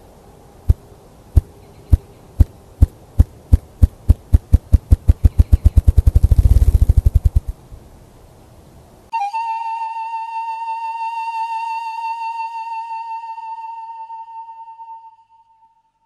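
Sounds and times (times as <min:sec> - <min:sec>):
grouse wing drumming thumps: 0:03.2 - 0:07.5.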